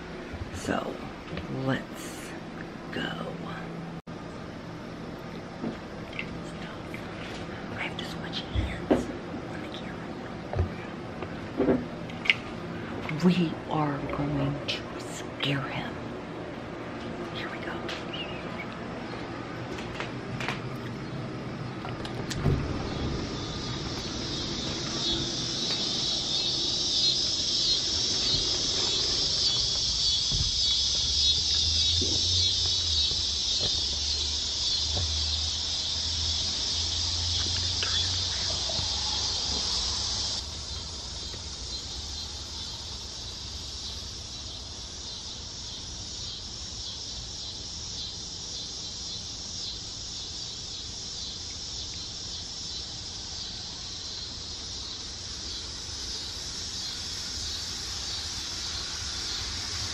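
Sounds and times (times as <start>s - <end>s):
low hum: 0.0s - 42.6s
insects pulsing buzz: 0.0s - 59.9s.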